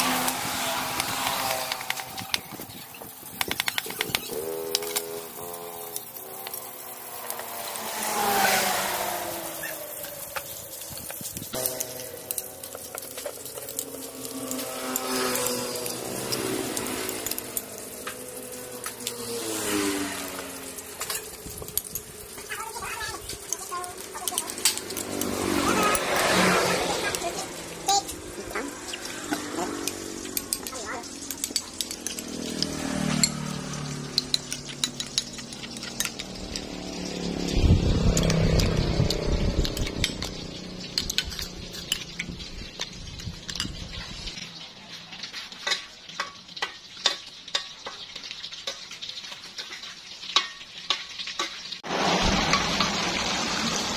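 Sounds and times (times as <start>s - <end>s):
passing vehicle engine hum: 0.0s - 2.5s, 3.8s - 22.5s, 23.3s - 44.6s
spoon clinking against bowl: 34.2s - 36.5s
metal spoon clicking against bowl: 34.2s - 36.6s, 38.2s - 42.9s.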